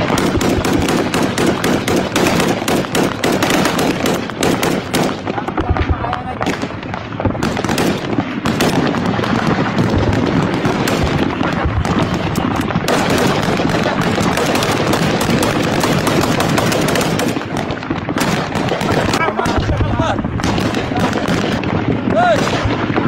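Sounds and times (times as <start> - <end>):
machine-gun bursts: 0.0 - 5.2, 12.9 - 19.6.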